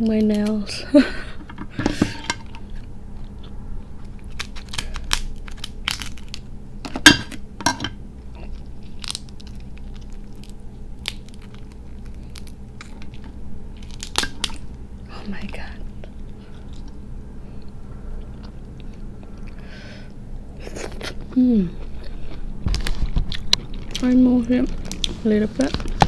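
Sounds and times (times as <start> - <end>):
crab shell cracking: 4.0 - 7.8, 8.5 - 14.8.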